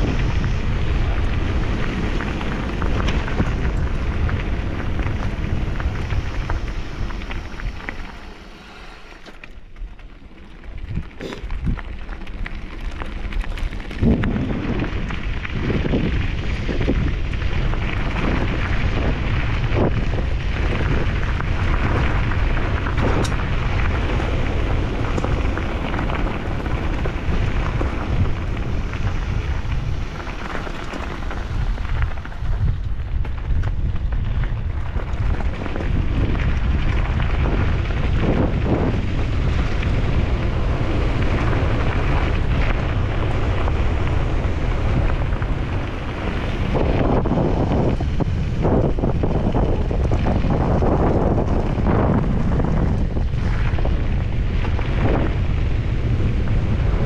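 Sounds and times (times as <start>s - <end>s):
bike knocking and rattling: 0.0s - 57.0s
bike tyres crunching over gravel: 0.0s - 57.0s
heavy wind on microphone: 0.0s - 57.0s.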